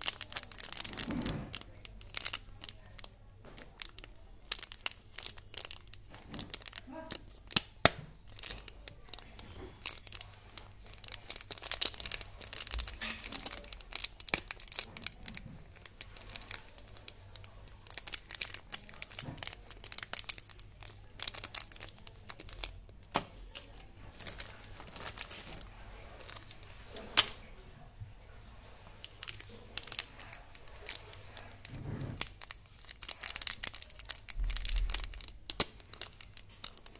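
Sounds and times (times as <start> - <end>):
plastic wrapper crinkling: 0.0 - 36.9.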